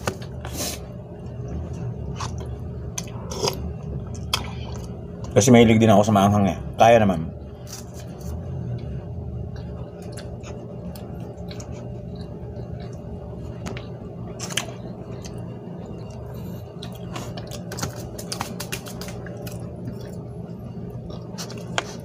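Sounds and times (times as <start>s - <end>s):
low room hum: 0.0s - 22.0s
person chewing soft bread: 0.1s - 5.4s, 7.5s - 22.0s.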